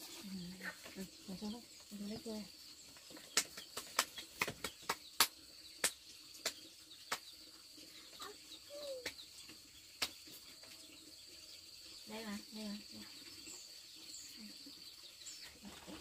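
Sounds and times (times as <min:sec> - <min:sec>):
hands clapping: 0:03.4 - 0:07.3, 0:08.8 - 0:09.2, 0:10.0 - 0:10.2.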